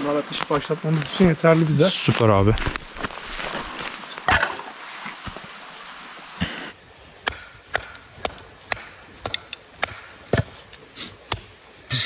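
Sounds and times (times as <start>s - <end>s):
hatchet chopping wood: 7.2s - 10.7s, 11.3s - 11.6s.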